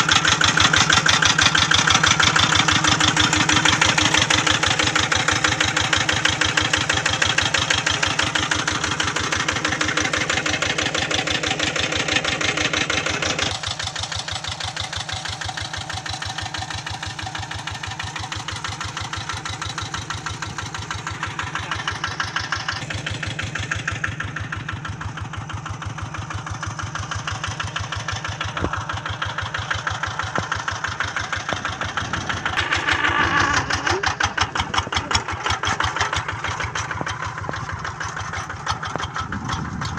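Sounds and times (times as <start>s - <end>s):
diesel engine chugging: 0.0s - 39.9s.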